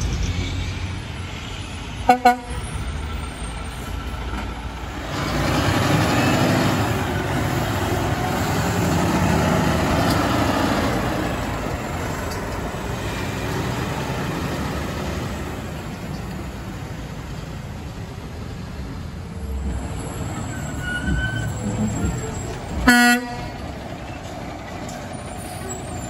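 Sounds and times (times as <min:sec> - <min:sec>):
diesel truck driving past: 0:00.0 - 0:26.0.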